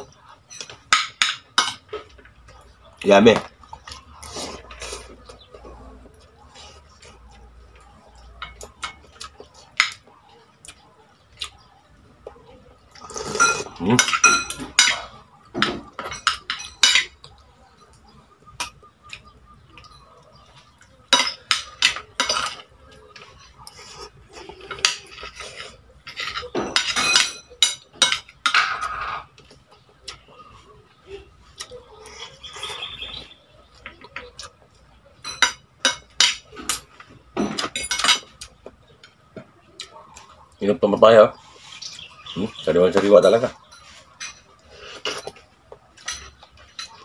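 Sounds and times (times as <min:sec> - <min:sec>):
cutlery clinking on a plate: 0:00.5 - 0:02.2, 0:08.4 - 0:10.0, 0:13.2 - 0:17.4, 0:18.6 - 0:23.4, 0:24.6 - 0:29.6, 0:35.2 - 0:38.5, 0:43.6 - 0:47.0.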